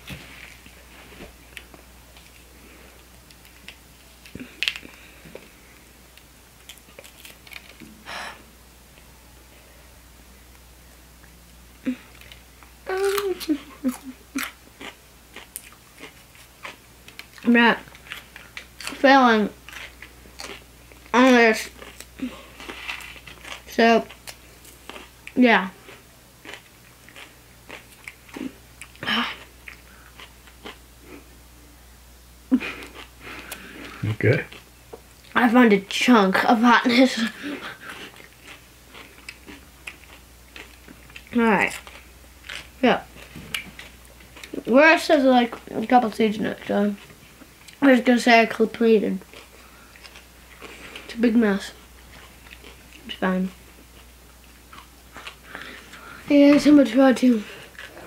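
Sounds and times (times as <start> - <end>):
pepper crunching and chewing: 6.6 - 7.8, 12.1 - 19.0, 19.6 - 30.8, 37.8 - 44.7, 49.2 - 51.1.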